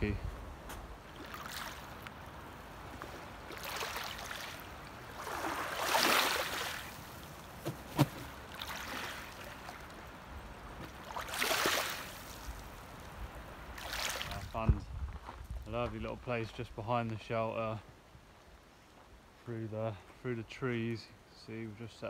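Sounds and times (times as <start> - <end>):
water lapping on shingle: 1.0 - 14.5.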